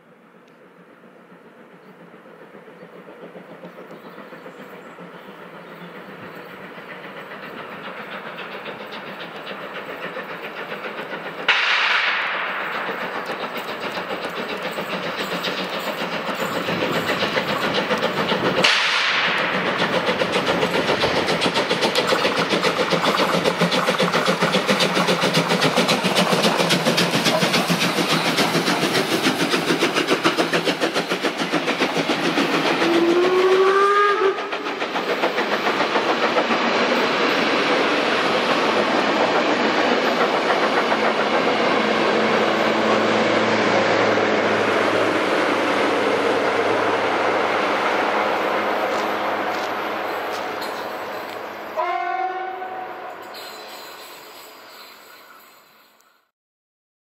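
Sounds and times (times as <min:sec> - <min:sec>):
steam train running: 0:00.0 - 0:56.3
train whistle: 0:32.8 - 0:34.6, 0:51.7 - 0:54.9.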